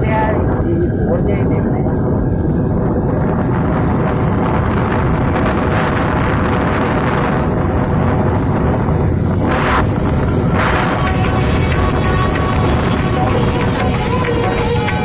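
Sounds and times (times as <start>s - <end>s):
motorcycle engine running: 0.0s - 15.0s
wind rushing over microphone: 0.0s - 15.0s.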